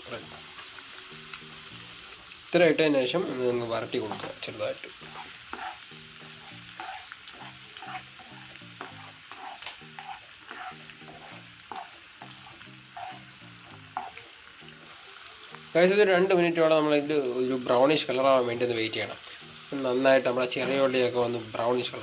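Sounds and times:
vegetables sizzling in oil: 0:00.0 - 0:22.0
spatula stirring: 0:03.8 - 0:15.0.

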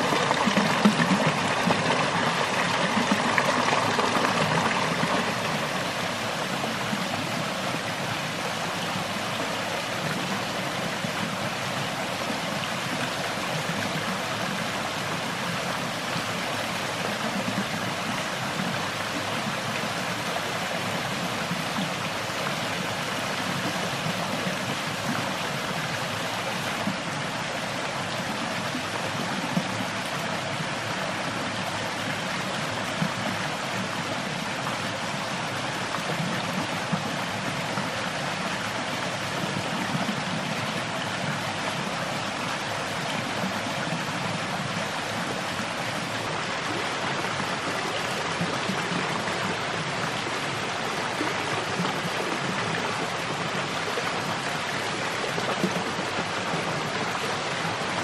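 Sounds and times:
stream rushing over rocks: 0:00.0 - 0:58.0.

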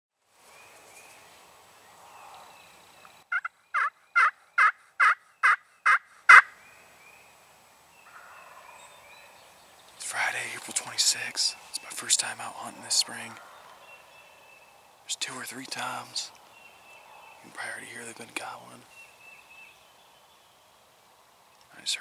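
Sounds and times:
faint songbirds chirping: 0:00.2 - 0:22.0
turkey yelps: 0:03.3 - 0:06.5.

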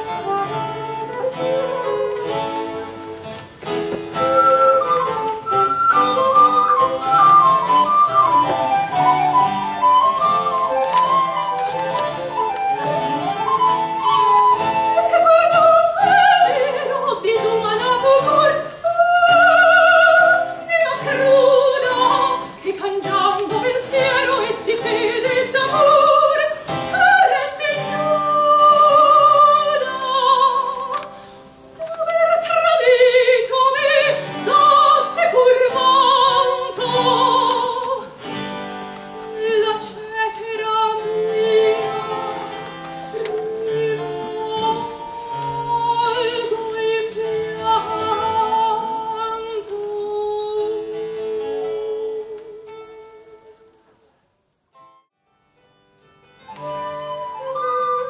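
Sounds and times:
woman singing operatically: 0:04.3 - 0:31.1, 0:31.8 - 0:38.2, 0:39.2 - 0:42.5, 0:43.1 - 0:53.6
small instrumental accompaniment: 0:54.7 - 0:58.0.

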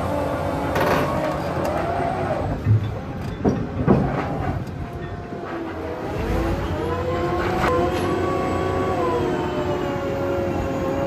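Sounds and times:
loud knocks: 0:03.4 - 0:04.4.

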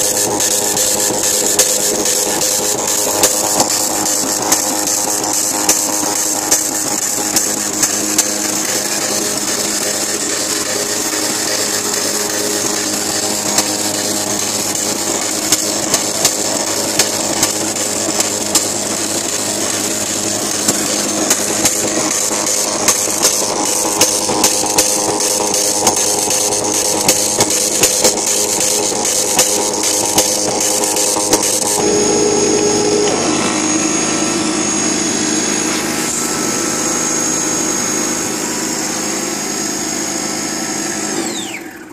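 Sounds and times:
sharp printer clicks: 0:00.0 - 0:31.8
line printer rasping buzz: 0:00.0 - 0:41.9.

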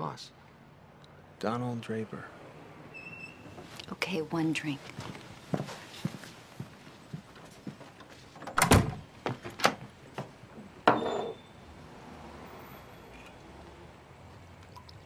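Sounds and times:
glasses and bottles knocking: 0:10.8 - 0:11.4.

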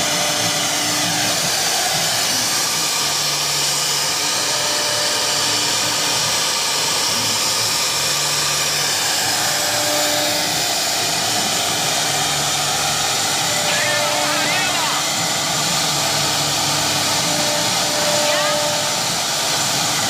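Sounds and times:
wood router whirring: 0:00.0 - 0:20.0.

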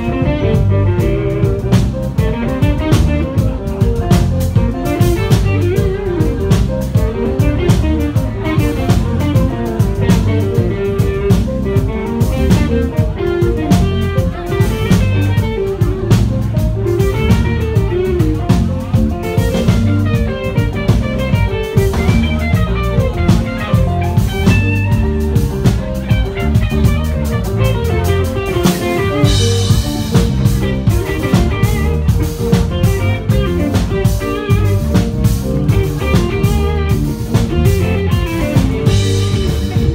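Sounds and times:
drum kit beat: 0:00.0 - 0:39.9
electric guitar: 0:00.0 - 0:39.9
keyboard playing: 0:00.0 - 0:39.9.

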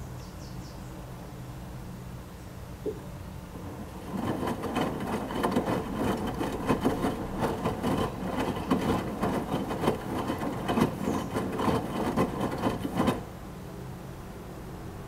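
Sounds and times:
washing machine drum sloshing: 0:03.5 - 0:13.4.

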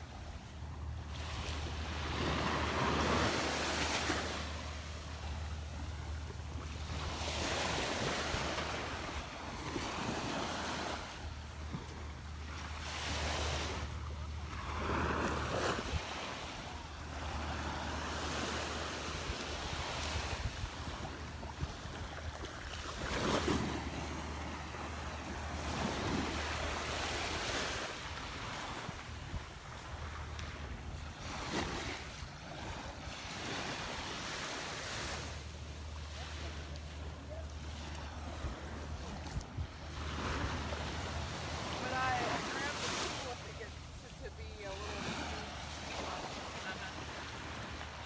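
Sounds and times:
surf washing onto sand: 0:01.0 - 0:48.0
wind rumble on microphone: 0:38.0 - 0:42.2.

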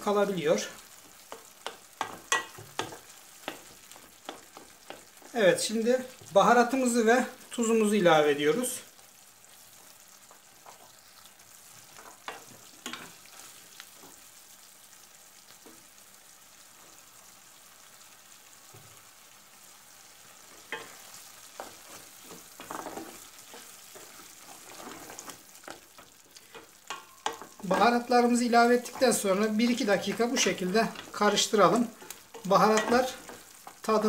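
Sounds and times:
food frying in a pan: 0:00.0 - 0:34.0
wooden spoon scraping a pan: 0:00.6 - 0:06.5, 0:09.7 - 0:14.2, 0:20.4 - 0:34.0.

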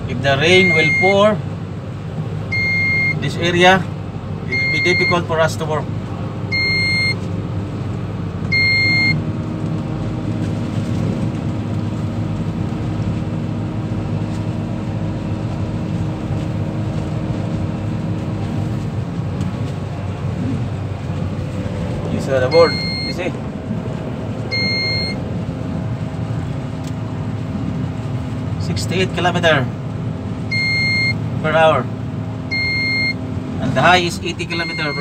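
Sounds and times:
crane engine humming: 0:00.0 - 0:28.6
short electronic beeps: 0:00.5 - 0:01.2, 0:02.5 - 0:03.2, 0:04.5 - 0:05.3, 0:06.5 - 0:07.2, 0:08.5 - 0:09.2, 0:22.5 - 0:23.3, 0:24.5 - 0:25.2, 0:30.5 - 0:31.2, 0:32.5 - 0:33.2, 0:34.5 - 0:35.0.

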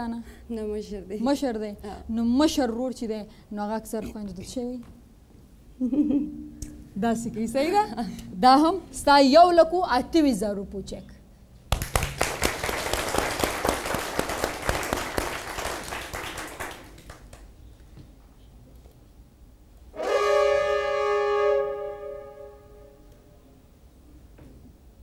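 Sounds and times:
audience applauding: 0:11.7 - 0:17.5
held brass chord: 0:20.0 - 0:23.2.

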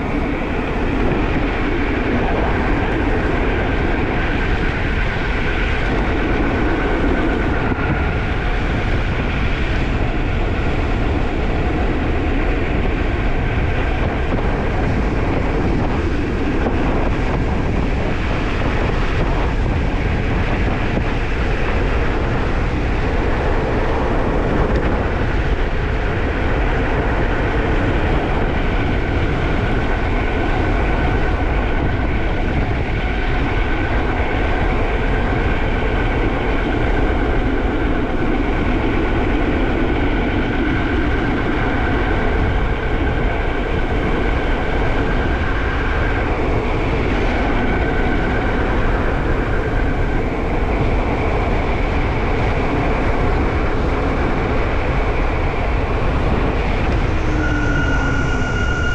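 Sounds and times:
wind rush: 0:00.0 - 0:58.9
high brake squeal: 0:57.0 - 0:58.9.

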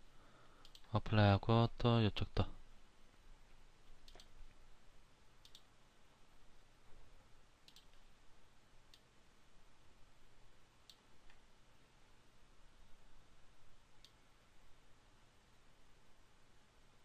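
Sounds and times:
room hiss: 0:00.0 - 0:17.0
computer mouse clicks: 0:00.6 - 0:00.9, 0:03.9 - 0:04.4, 0:05.4 - 0:05.7, 0:07.6 - 0:08.1.

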